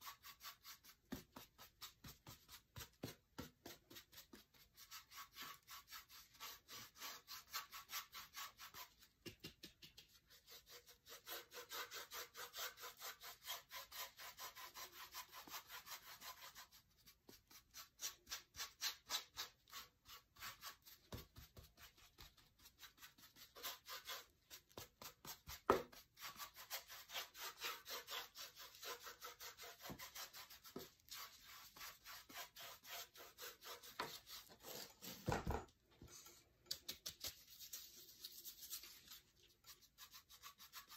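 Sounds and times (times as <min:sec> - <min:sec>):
paintbrush scratchy strokes: 0:09.9 - 0:34.9, 0:36.1 - 0:40.9.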